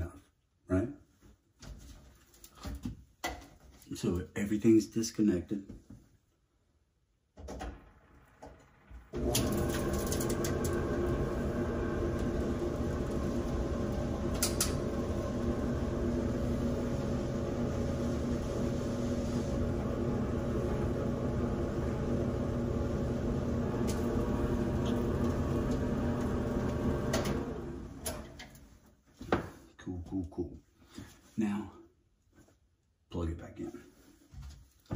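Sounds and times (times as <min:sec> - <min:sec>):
clothes dryer running: 0:07.4 - 0:28.8
air rushing from outlet: 0:07.7 - 0:28.2.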